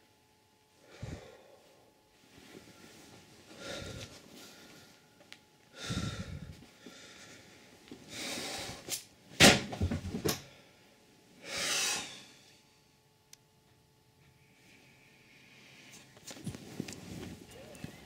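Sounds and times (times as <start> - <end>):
person breathing hard: 0.8 - 2.0, 3.5 - 5.1, 5.7 - 8.9
rustling of handheld camera: 15.8 - 18.0.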